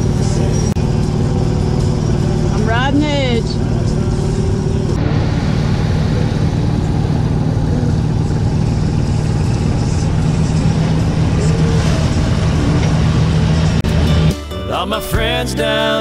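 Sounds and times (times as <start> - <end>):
low engine drone: 0.0 - 16.0
water rushing and churning: 2.0 - 13.9.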